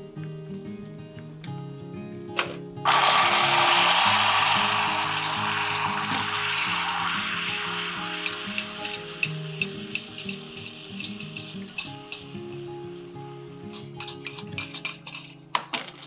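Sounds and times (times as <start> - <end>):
crackling pops of bubbling mixture: 2.2 - 12.6
loud sizzle: 2.8 - 15.2.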